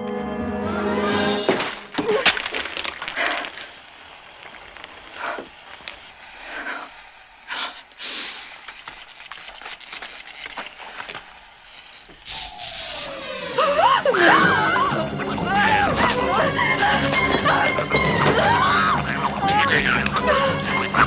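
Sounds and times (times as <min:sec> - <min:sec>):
objects knocking and clattering: 0:01.5 - 0:03.7, 0:15.0 - 0:18.6.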